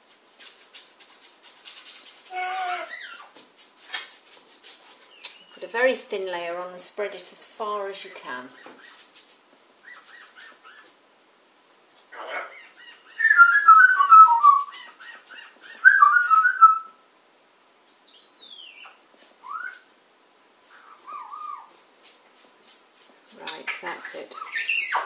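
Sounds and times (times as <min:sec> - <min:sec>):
parrot whistling: 0:13.2 - 0:14.7, 0:15.8 - 0:17.0.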